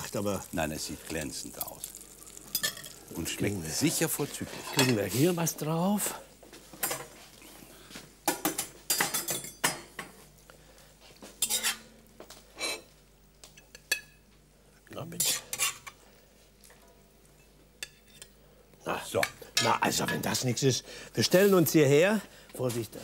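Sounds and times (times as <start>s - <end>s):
metal spoon scraping and clinking: 11.4s - 11.8s.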